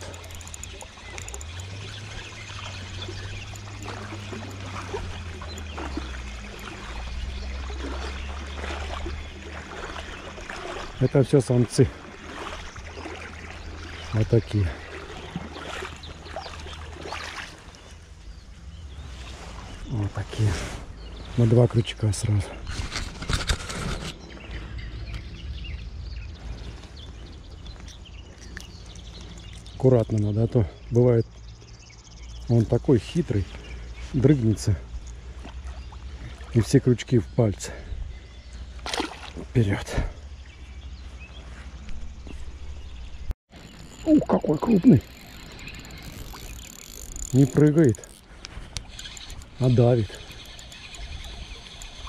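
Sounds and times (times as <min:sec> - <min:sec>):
small water splashes: 0:00.0 - 0:20.4, 0:26.4 - 0:52.0
river water flowing and gurgling: 0:00.0 - 0:52.0
faint bird chirps: 0:24.0 - 0:52.0.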